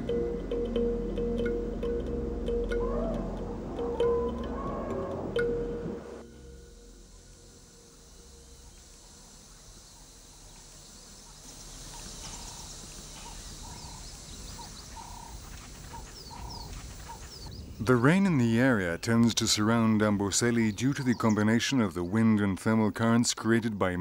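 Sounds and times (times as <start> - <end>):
short low bird calls: 2.7 - 5.4.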